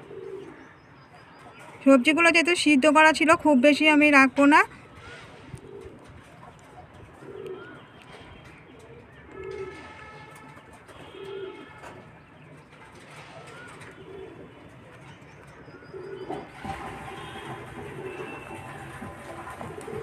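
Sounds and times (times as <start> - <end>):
pigeon cooing: 0.0 - 0.6, 5.2 - 10.1, 11.0 - 12.0, 13.3 - 20.0.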